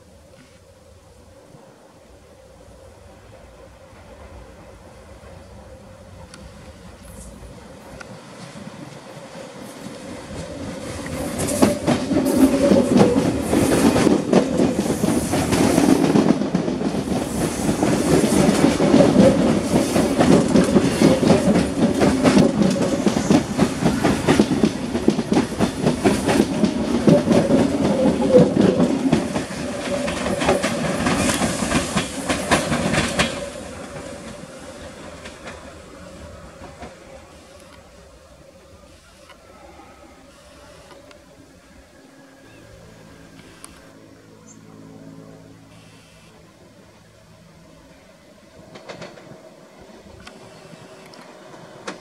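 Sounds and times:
electric train passing: 0:00.0 - 0:52.0
wheels clattering over rail joints: 0:09.9 - 0:38.0.

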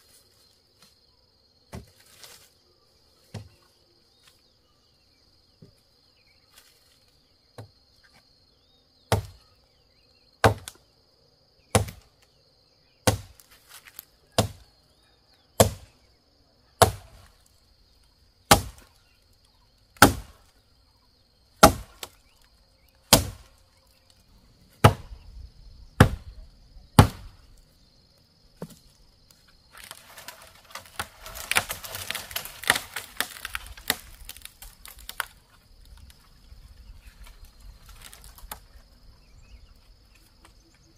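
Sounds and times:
rustling and crackling of leaves: 0:00.0 - 0:01.1, 0:01.8 - 0:04.4, 0:06.4 - 0:07.2, 0:13.3 - 0:14.2, 0:28.8 - 0:40.8
high insect drone: 0:00.0 - 0:40.9
machete chopping tree trunk: 0:09.1 - 0:09.4, 0:10.4 - 0:10.8, 0:11.7 - 0:12.0, 0:13.0 - 0:13.5, 0:14.4 - 0:14.6, 0:15.6 - 0:15.9, 0:16.8 - 0:17.3, 0:18.5 - 0:18.9, 0:20.0 - 0:20.4, 0:21.6 - 0:22.2, 0:23.1 - 0:23.5, 0:24.8 - 0:25.1, 0:26.0 - 0:26.4, 0:27.0 - 0:27.4, 0:30.6 - 0:35.3.

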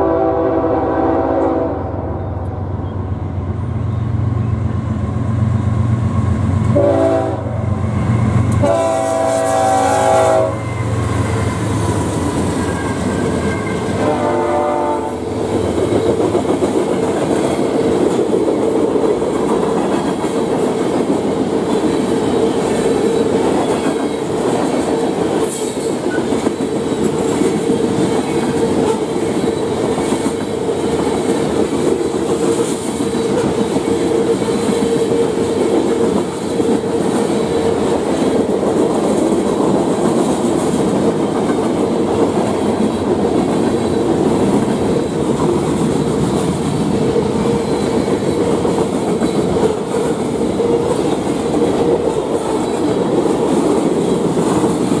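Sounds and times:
train air horn blasts: 0:00.0 - 0:02.5, 0:06.7 - 0:07.7, 0:08.5 - 0:11.0, 0:13.6 - 0:15.3
diesel locomotives rumbling: 0:00.0 - 0:55.0
train wheel noise: 0:02.6 - 0:55.0
clickety-clack over rail joints: 0:15.0 - 0:55.0.

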